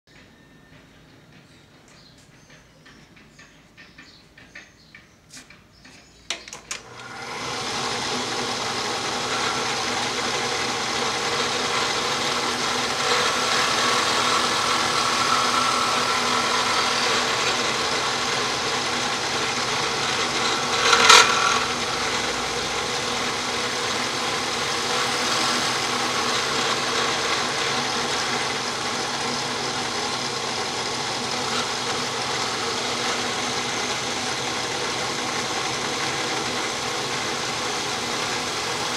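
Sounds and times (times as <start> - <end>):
drill bit scraping plastic: 6.3 - 36.5
electric drill motor whine: 6.5 - 38.9.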